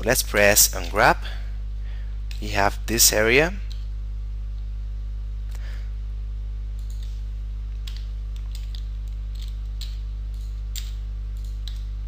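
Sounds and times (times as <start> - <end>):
low electrical hum: 0.0 - 12.0
computer keyboard and mouse clicks: 6.8 - 7.2, 7.8 - 11.9.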